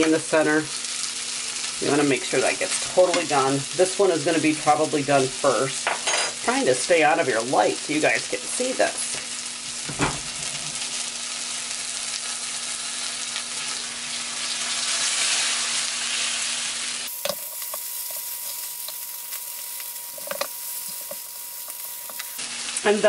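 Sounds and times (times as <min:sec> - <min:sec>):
fish sizzling in a skillet: 0:00.0 - 0:23.0.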